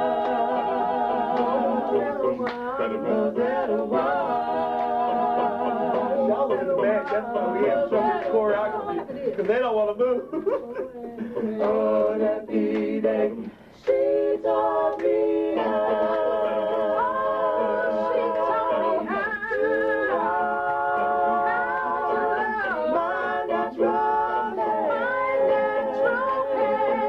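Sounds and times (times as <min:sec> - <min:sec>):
group singing a cappella: 0:00.0 - 0:27.0.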